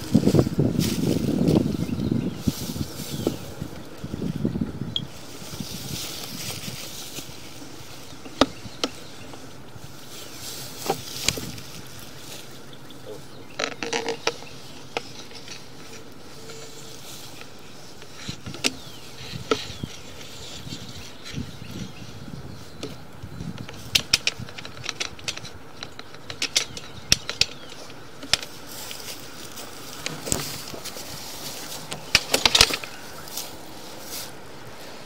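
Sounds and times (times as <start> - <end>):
camera and cable clicking and knocking: 31.8 - 33.0.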